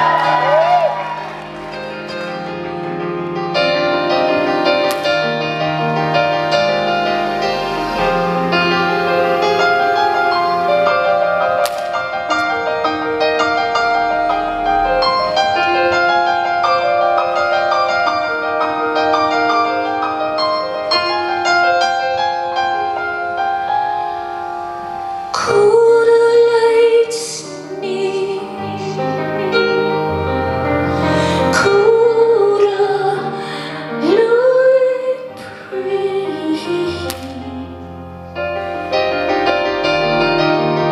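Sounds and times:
keyboard playing chords and melody: 0.0 - 40.9.

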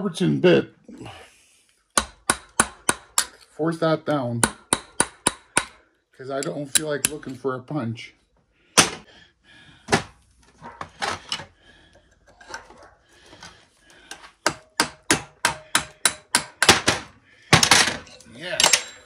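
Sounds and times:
hammer tapping on metal: 4.4 - 5.8, 14.4 - 16.8.

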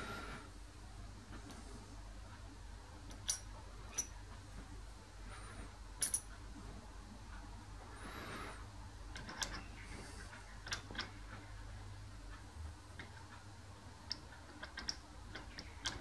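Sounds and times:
low steady hum: 0.0 - 16.0
metal parts clicking: 3.1 - 4.2, 6.0 - 6.4, 9.1 - 9.9, 10.6 - 11.2, 14.1 - 16.0.

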